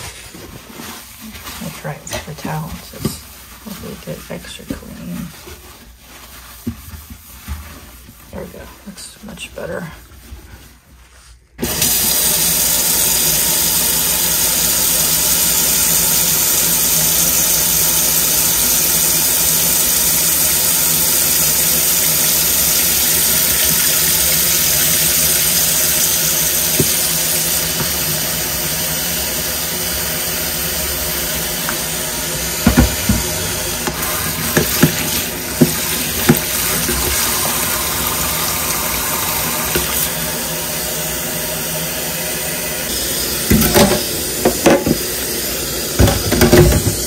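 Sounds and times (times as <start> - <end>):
water running into sink: 0.6 - 8.6, 11.6 - 47.0
tap turned on: 26.7 - 27.0, 32.6 - 37.1.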